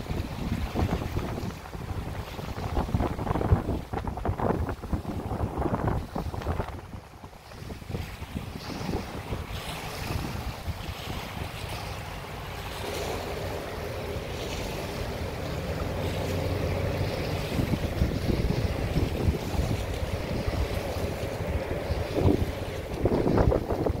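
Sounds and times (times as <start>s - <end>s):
waves lapping: 0.0s - 24.0s
wind buffeting microphone: 0.0s - 24.0s
steady low hum: 8.5s - 24.0s.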